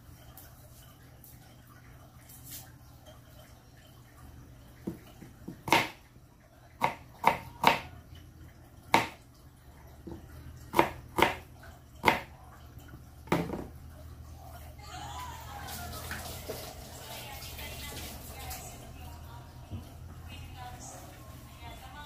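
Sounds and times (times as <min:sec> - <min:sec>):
tap running: 0:04.6 - 0:06.1
knife chopping on plastic board: 0:04.9 - 0:06.0, 0:06.8 - 0:07.9, 0:08.9 - 0:09.2, 0:10.1 - 0:11.4, 0:12.0 - 0:12.3.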